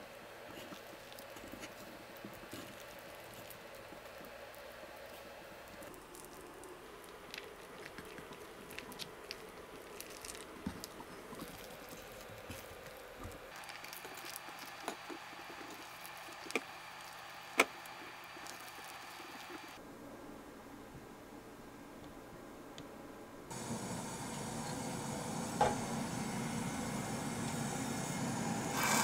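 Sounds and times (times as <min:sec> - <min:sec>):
rice paper folding and rolling: 0:00.4 - 0:19.8.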